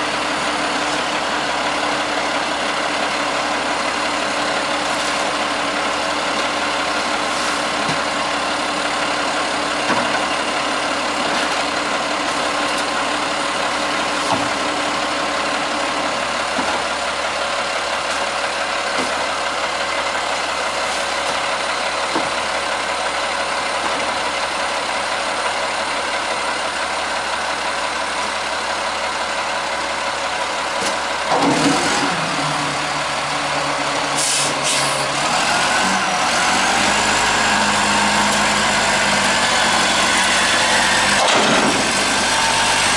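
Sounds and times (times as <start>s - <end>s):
diesel engine idling: 0.0s - 42.9s
engine revving: 34.1s - 42.9s.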